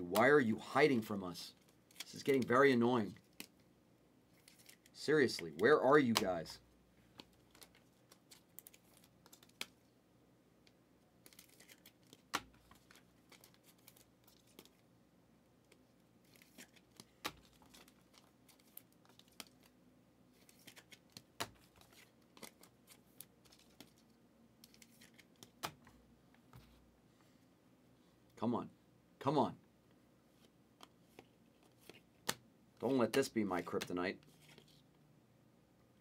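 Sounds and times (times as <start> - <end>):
trading cards flipped by hand: 1.6 - 3.6, 4.3 - 6.5, 7.1 - 9.9, 11.2 - 14.8, 15.7 - 19.7, 20.3 - 26.8, 30.4 - 34.8.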